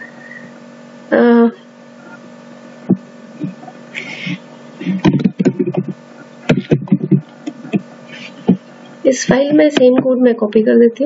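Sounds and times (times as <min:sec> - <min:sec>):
electrical hum: 0:00.0 - 0:11.0
low half-spoken speech: 0:02.9 - 0:11.0.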